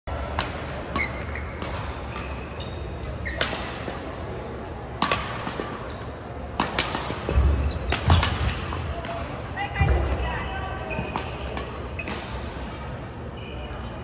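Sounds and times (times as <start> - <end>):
racket hitting shuttlecock: 0.3 - 4.1, 5.0 - 5.9, 6.5 - 9.3
shoes squeaking on wooden court: 0.9 - 3.6, 7.2 - 8.3, 9.8 - 12.5, 13.2 - 14.0.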